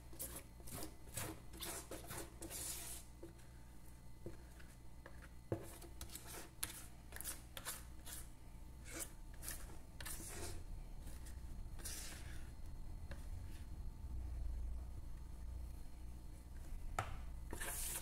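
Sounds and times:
spatula scraping plastic bowl: 0:00.2 - 0:03.4, 0:04.3 - 0:13.6, 0:17.5 - 0:18.0.

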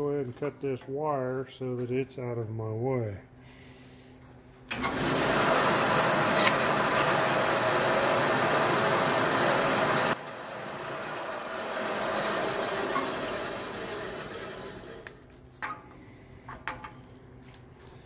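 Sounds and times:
band saw running: 0:04.8 - 0:15.1
band saw cutting plastic: 0:05.4 - 0:10.0, 0:10.9 - 0:15.2.

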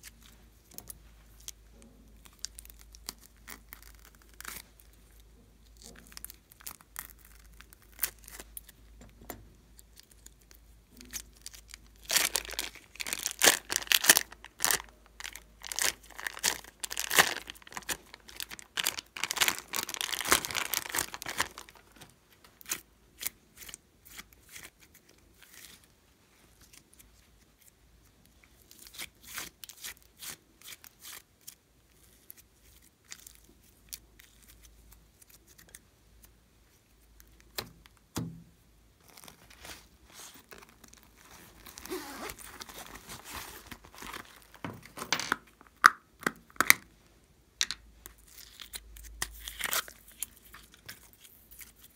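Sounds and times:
plastic bag crinkling and tearing: 0:09.8 - 0:25.9, 0:39.0 - 0:45.8, 0:48.2 - 0:51.9.

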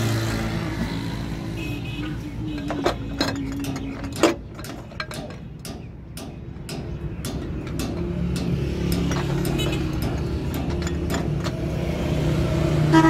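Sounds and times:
metallic clicks of fuel filter: 0:02.5 - 0:11.6.

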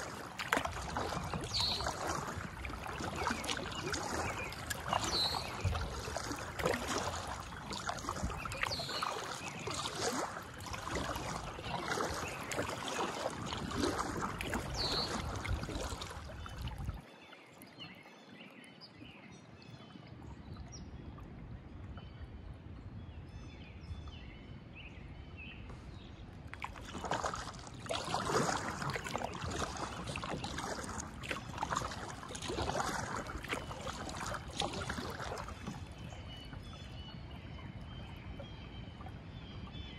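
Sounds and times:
kayak paddle splashing in water: 0:00.0 - 0:17.1, 0:26.4 - 0:39.9.

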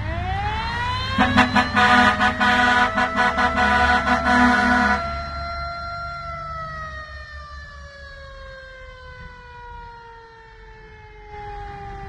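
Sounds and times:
truck engines rumbling: 0:00.0 - 0:08.0
siren winding down: 0:00.0 - 0:08.2.

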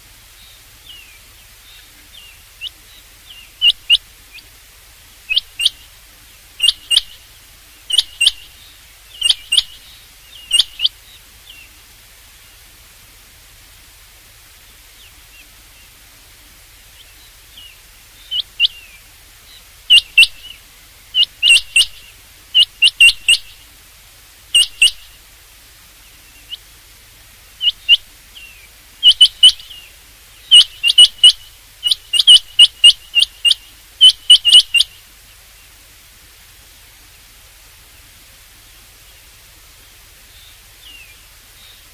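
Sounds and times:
quail whistled calls: 0:02.0 - 0:04.5, 0:05.3 - 0:05.9, 0:06.6 - 0:07.2, 0:07.9 - 0:10.9, 0:17.6 - 0:19.0, 0:19.9 - 0:23.6, 0:24.5 - 0:25.2, 0:27.6 - 0:35.0.

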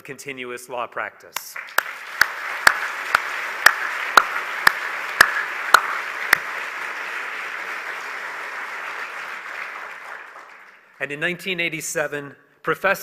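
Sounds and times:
man clapping close to microphone: 0:01.4 - 0:11.0
audience applauding: 0:01.6 - 0:11.0.

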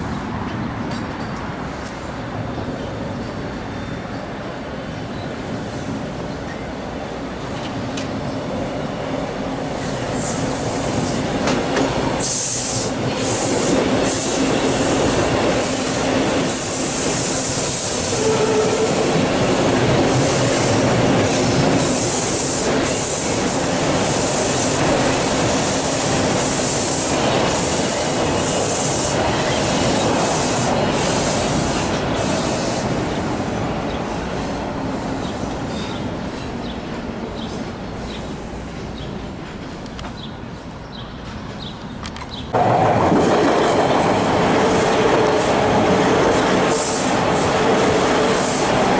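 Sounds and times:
train rumble: 0:00.0 - 0:48.9
train wheels squealing: 0:16.5 - 0:19.3, 0:26.5 - 0:33.2.

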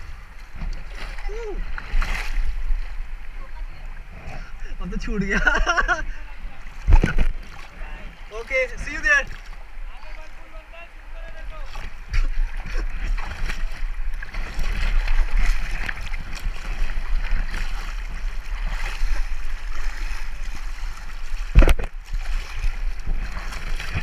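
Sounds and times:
river water splashing: 0:00.0 - 0:24.0.

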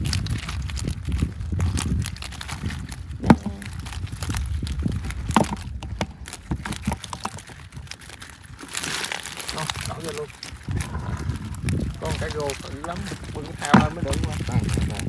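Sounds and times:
low rumble: 0:00.0 - 0:15.0
knocks and thumps: 0:03.2 - 0:07.6, 0:10.7 - 0:15.0.

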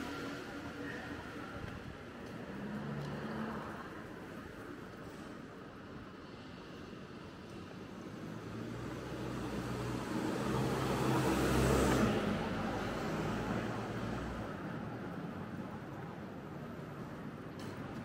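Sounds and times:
vehicle driving past: 0:08.5 - 0:14.0.

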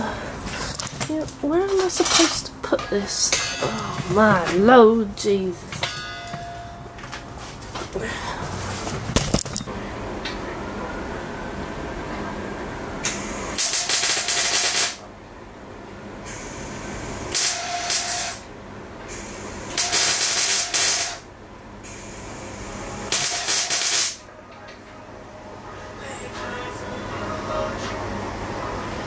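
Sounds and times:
low steady hum: 0:00.0 - 0:13.6
arc welding crackling hiss: 0:13.0 - 0:15.0, 0:16.3 - 0:18.5, 0:19.1 - 0:24.2.

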